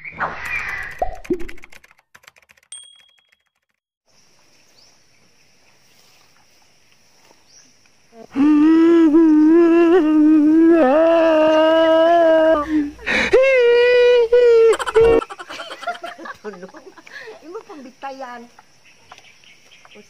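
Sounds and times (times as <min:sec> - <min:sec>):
person wailing long note: 0:08.4 - 0:12.7.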